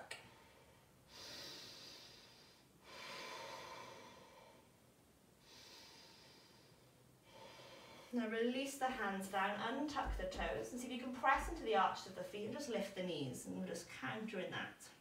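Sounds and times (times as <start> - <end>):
woman breathing slowly: 0.2 - 8.2.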